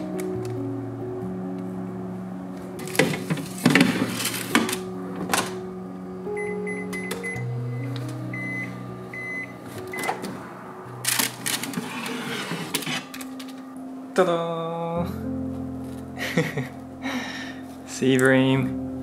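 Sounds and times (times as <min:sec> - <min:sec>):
oven touch panel beeping: 0:06.4 - 0:10.3.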